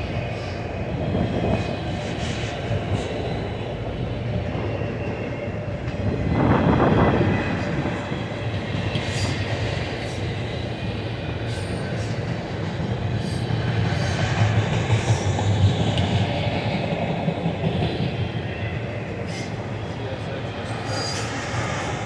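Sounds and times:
train wheels rumbling on rails: 0.0 - 22.0
train wheels clacking: 5.8 - 22.0.

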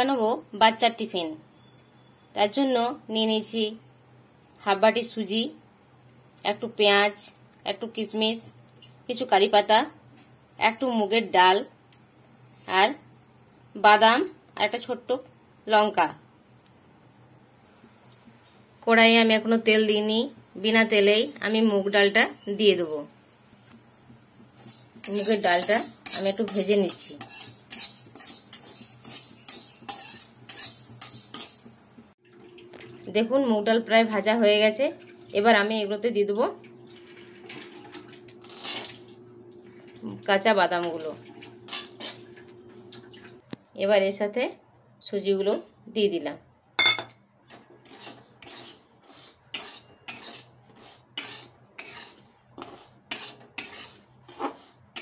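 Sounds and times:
metal spatula scraping a pan: 24.5 - 31.8, 38.4 - 39.1, 41.7 - 42.2, 47.5 - 55.0.

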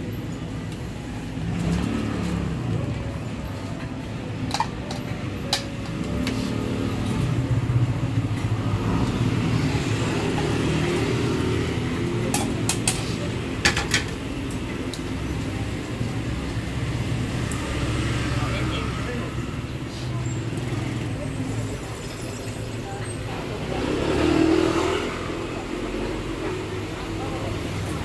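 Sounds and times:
road traffic rumble: 0.0 - 28.0
metal utensils clinking on pots: 3.7 - 7.2, 12.0 - 16.0.

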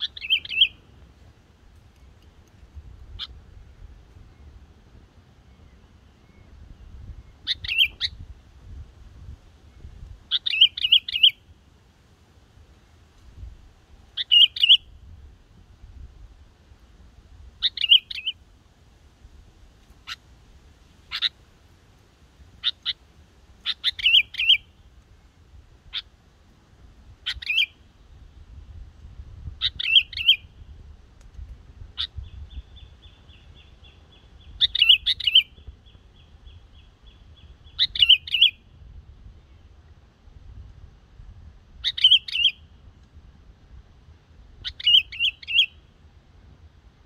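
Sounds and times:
bird song phrases: 0.0 - 0.9, 5.4 - 8.2, 9.7 - 11.5, 14.2 - 14.9, 17.6 - 18.4, 23.6 - 24.9, 27.2 - 28.2, 29.6 - 30.7, 31.9 - 38.8, 41.8 - 42.8, 44.6 - 45.9.

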